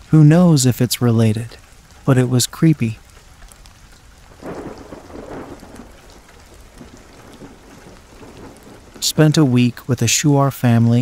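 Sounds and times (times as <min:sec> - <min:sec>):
steady rain: 0:00.0 - 0:11.0
thunder rolling: 0:04.2 - 0:11.0.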